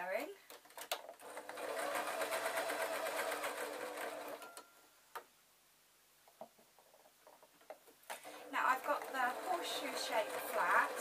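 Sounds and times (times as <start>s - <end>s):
sewing machine stitching: 0.8s - 4.6s, 8.2s - 11.0s.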